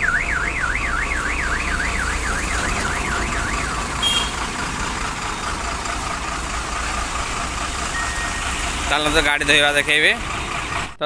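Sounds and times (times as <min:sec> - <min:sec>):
vehicle alarm siren warbling: 0:00.0 - 0:04.8, 0:07.8 - 0:10.9.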